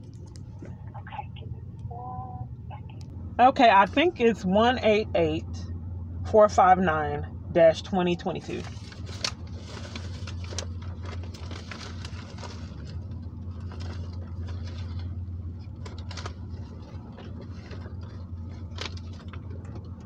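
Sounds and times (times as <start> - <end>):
faint clicks and rustles: 0.0 - 3.2, 8.5 - 20.0
steady low hum: 0.0 - 20.0.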